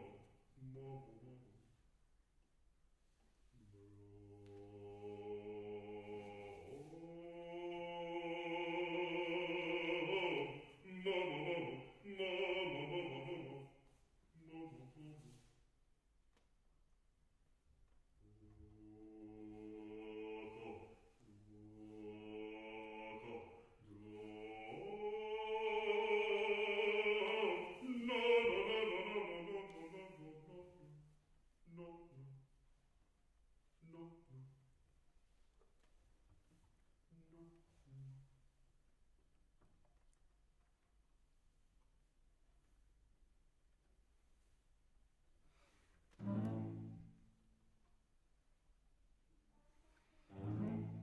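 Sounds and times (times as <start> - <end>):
deep voice singing long notes: 0.0 - 1.7, 3.6 - 13.7
man singing long low notes: 3.6 - 13.7, 18.2 - 31.0.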